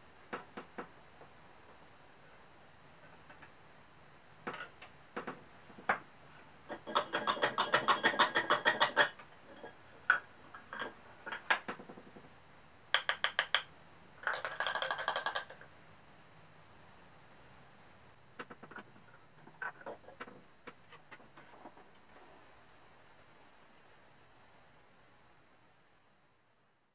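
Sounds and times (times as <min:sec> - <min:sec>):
props clicking and knocking on table: 0:06.7 - 0:12.3, 0:12.9 - 0:15.7, 0:18.4 - 0:18.9.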